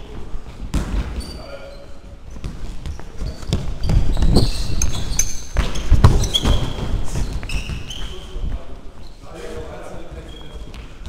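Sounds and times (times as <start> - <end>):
shoe squeaks: 1.2 - 8.4, 9.0 - 9.4, 10.2 - 10.8
ball thudding on hard floor: 5.6 - 7.8.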